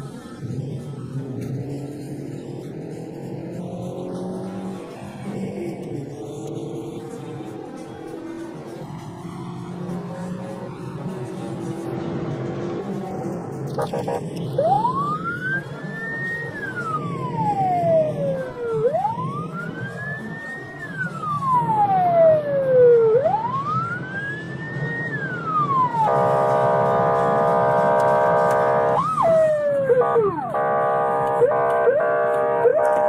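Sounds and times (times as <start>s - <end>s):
steady blaring siren tone: 0.0s - 33.0s
siren wailing: 13.7s - 33.0s
siren whoop: 13.8s - 33.0s.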